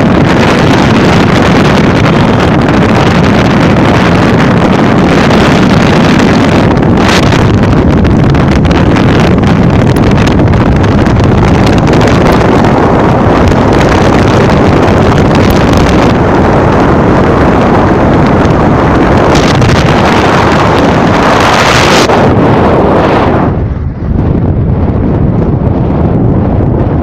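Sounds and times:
car road noise at speed: 0.0 - 27.0
wind buffeting microphone: 0.0 - 27.0.

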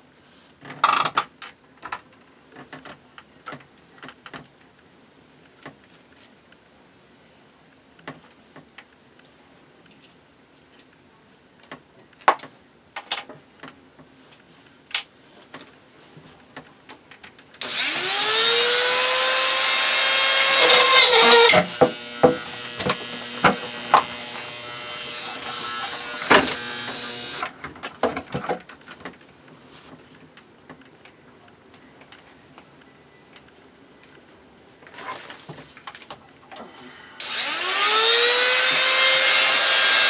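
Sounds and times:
rotary tool motor whining: 17.6 - 27.5, 37.2 - 40.0.

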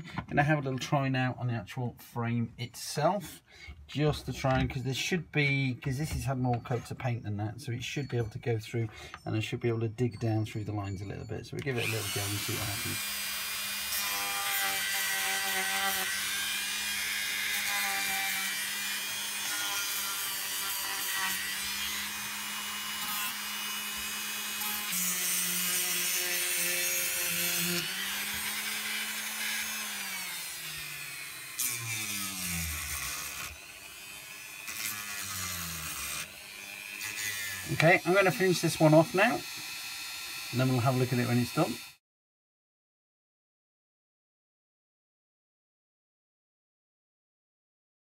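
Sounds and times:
rotary tool grinding wood: 11.6 - 42.0.

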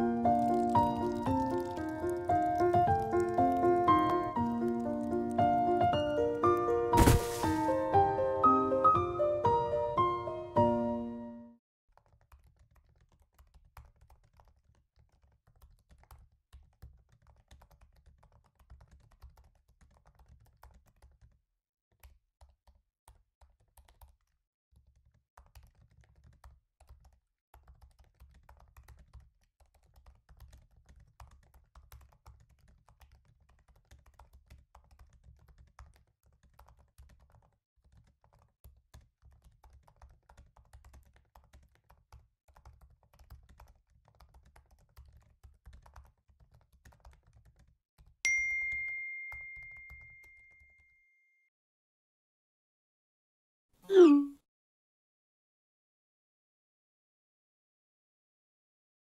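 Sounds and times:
faint laptop keyboard typing: 0.0 - 6.7, 11.9 - 51.0.

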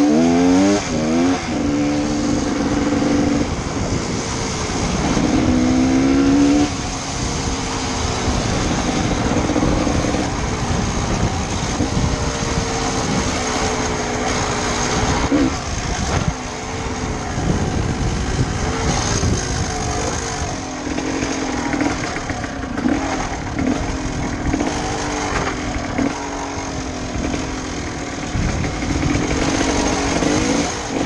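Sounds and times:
motorcycle engine revving: 0.0 - 31.0.

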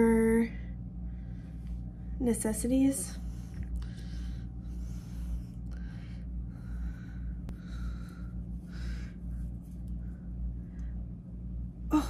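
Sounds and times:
steady low hum: 0.0 - 12.0
person breathing close to microphone: 3.1 - 11.2.

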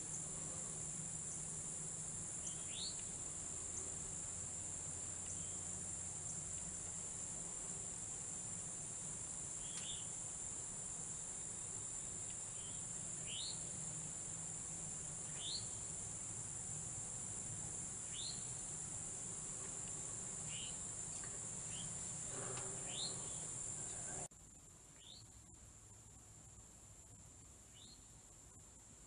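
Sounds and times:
insects droning: 0.0 - 29.0
bird chirping: 2.4 - 3.1, 9.6 - 10.1, 12.0 - 13.7, 15.2 - 15.9, 18.0 - 18.6, 19.8 - 24.3.

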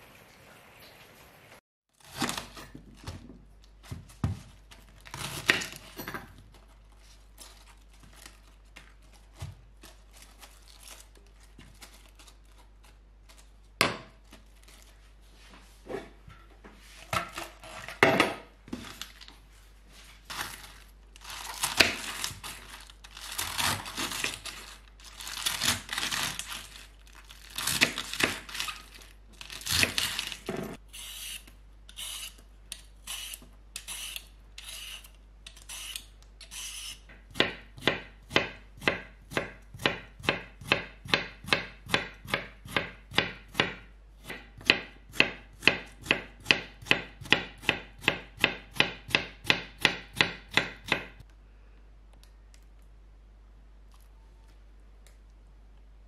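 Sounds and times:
knife chopping on wooden board: 37.3 - 51.2.

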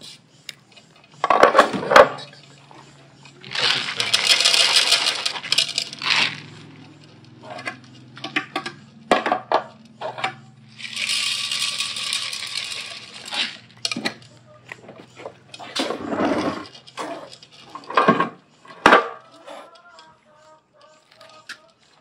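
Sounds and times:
kibble pouring into bowl: 3.5 - 6.4, 10.8 - 13.6.

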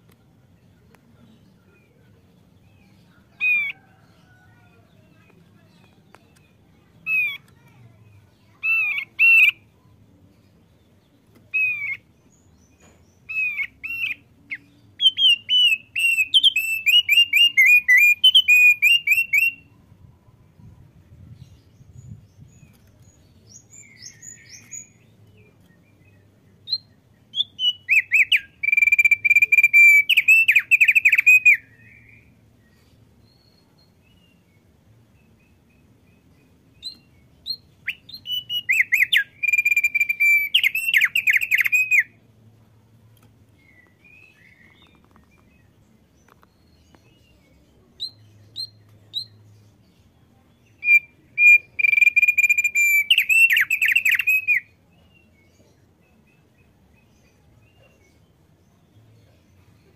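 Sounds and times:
bird singing whistled notes: 11.5 - 19.8, 21.8 - 32.3, 35.2 - 42.2, 46.3 - 49.5, 50.3 - 55.4.

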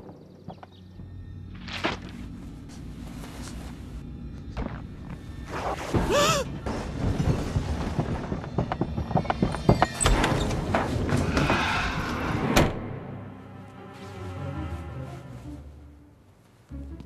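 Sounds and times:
quiet background music: 0.0 - 11.1, 12.7 - 17.0
irregular knocks and thumps: 5.8 - 11.6.

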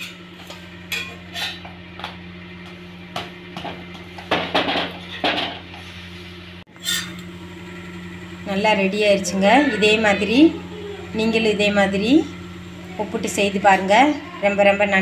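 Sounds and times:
metal spatula scraping griddle: 0.0 - 1.7, 4.9 - 7.2.

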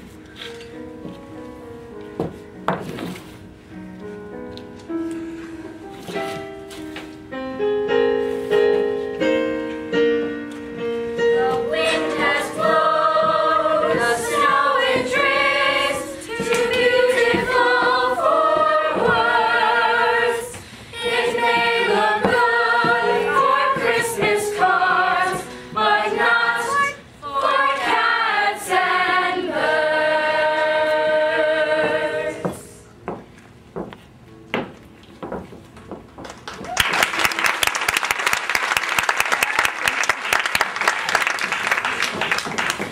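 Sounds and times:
choir singing: 11.2 - 32.9.

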